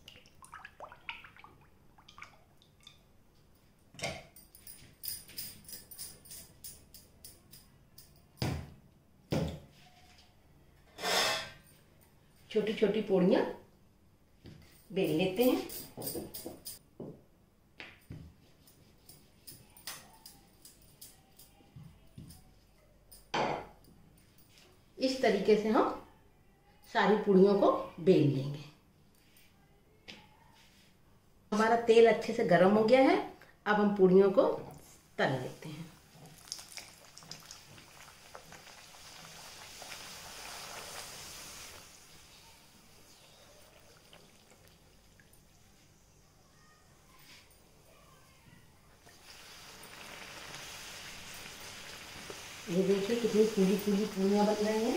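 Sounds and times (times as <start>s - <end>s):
dough deep-frying in oil: 35.2s - 46.0s, 49.0s - 54.9s.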